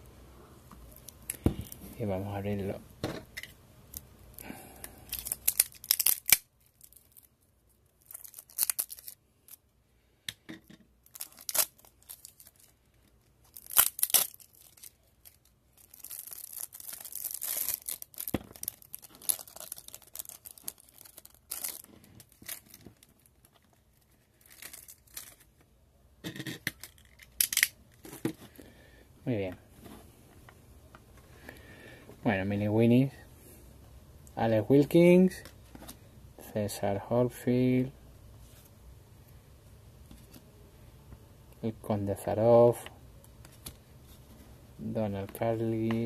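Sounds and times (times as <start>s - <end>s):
plastic wrap tearing and crinkling: 5.1s - 9.6s, 11.0s - 25.6s.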